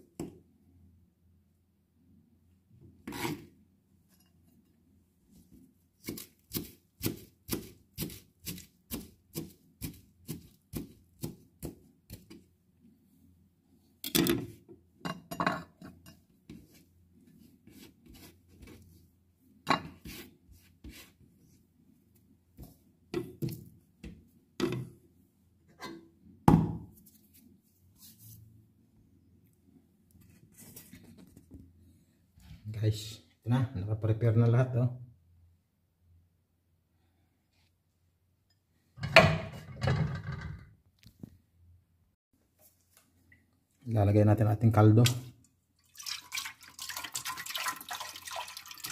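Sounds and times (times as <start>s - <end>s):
knife chopping celery: 6.0s - 12.4s.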